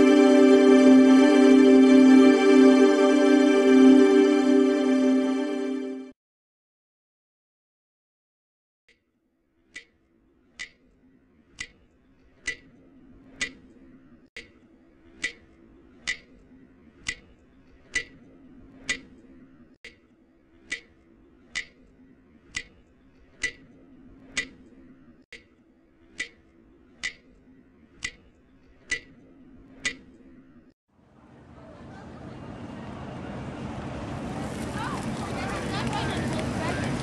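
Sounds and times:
clock ticking: 12.4s - 12.7s, 13.4s - 13.6s, 15.2s - 16.3s, 17.0s - 17.3s, 17.9s - 18.2s, 18.8s - 19.2s, 20.7s - 21.8s, 22.5s - 22.8s, 23.4s - 25.5s, 26.1s - 27.3s, 28.0s - 28.3s, 28.9s - 29.2s, 29.8s - 30.1s.

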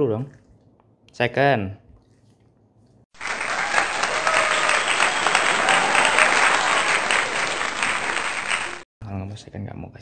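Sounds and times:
crowd applause: 3.2s - 8.9s.

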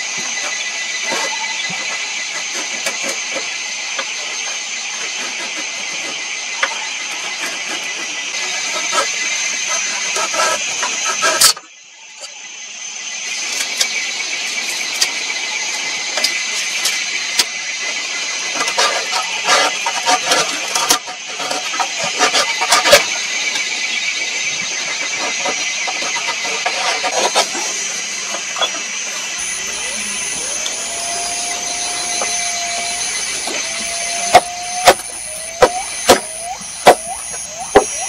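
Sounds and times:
knife scraping wooden stick: 25.0s - 38.0s.

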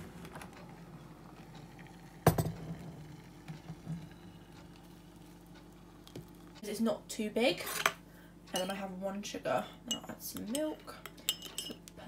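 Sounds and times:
kettle or crockery clunk: 2.2s - 4.1s.

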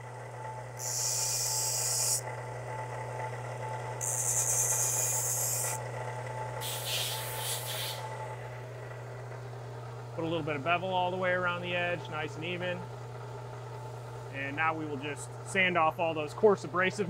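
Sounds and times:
belt grinder motor humming: 0.0s - 8.4s
metal grinding on abrasive belt: 4.0s - 5.8s.

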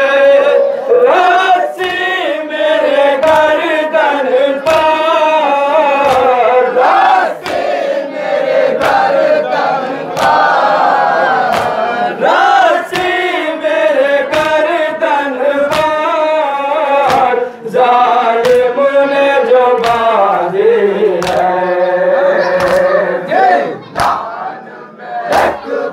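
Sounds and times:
man singing a lament into microphone: 0.0s - 7.4s, 12.2s - 23.9s
crowd of men chanting: 0.0s - 25.9s
chest-beating slaps: 1.8s - 2.2s, 3.2s - 3.7s, 4.6s - 5.1s, 5.9s - 7.9s, 8.7s - 9.3s, 10.1s - 10.5s, 11.4s - 11.9s, 12.8s - 13.3s, 14.2s - 14.8s, 15.6s - 16.2s, 17.0s - 17.4s, 18.4s - 18.8s, 19.4s - 20.4s, 21.1s - 21.6s, 22.6s - 23.0s, 23.8s - 24.3s, 25.3s - 25.6s.

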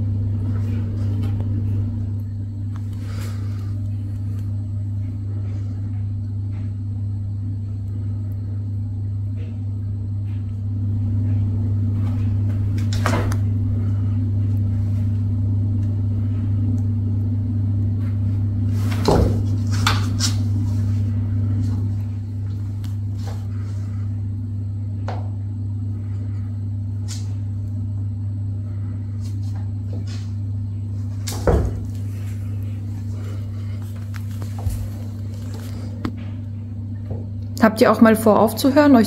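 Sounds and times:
steady low hum: 0.0s - 39.0s
cats scuffing and tapping on mat: 18.7s - 21.0s, 31.1s - 32.4s, 33.1s - 36.4s.

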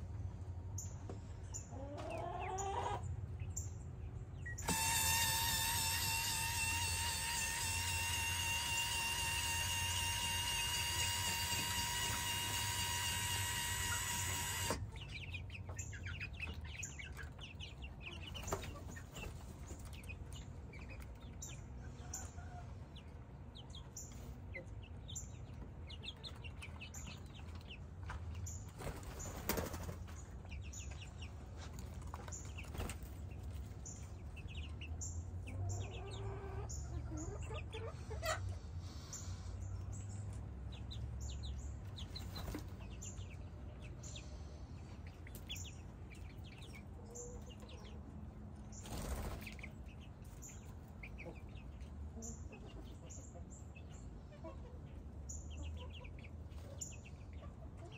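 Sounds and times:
chicks peeping and chirping: 0.0s - 57.9s.

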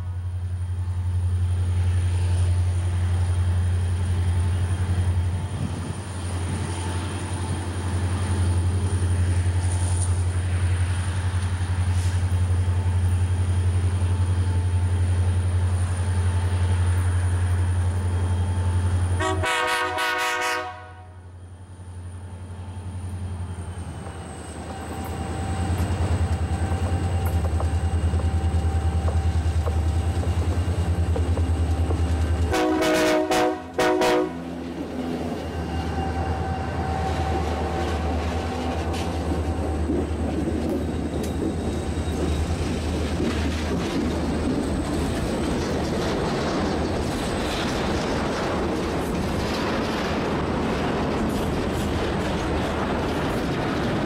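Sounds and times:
locomotive horn blasts: 19.2s - 21.2s, 32.5s - 34.5s.

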